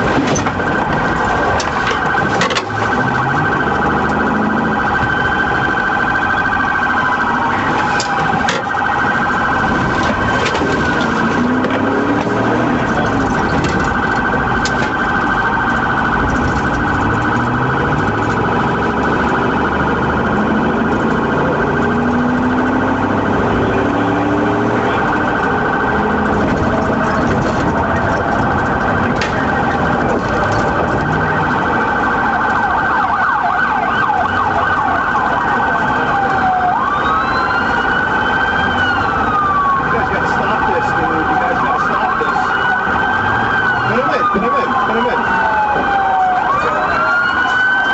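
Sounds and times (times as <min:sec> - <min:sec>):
car engine and road noise: 0:00.0 - 0:47.9
police siren: 0:00.0 - 0:47.9.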